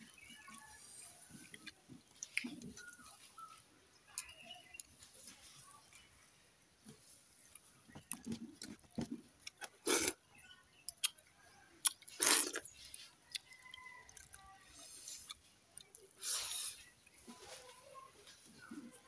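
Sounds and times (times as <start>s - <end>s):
chewing crunchy fried potato: 0.3s - 3.2s, 7.4s - 10.2s, 10.9s - 16.6s.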